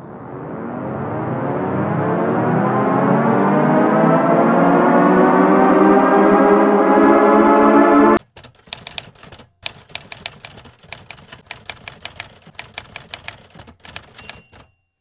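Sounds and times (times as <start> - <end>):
ambient music chord: 0.0 - 8.2
typewriter keys clacking: 8.2 - 14.9.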